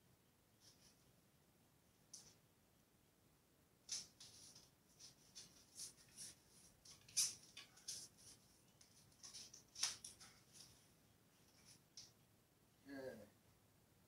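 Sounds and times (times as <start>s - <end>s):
light clicks and rustles of handling: 3.9s - 12.2s.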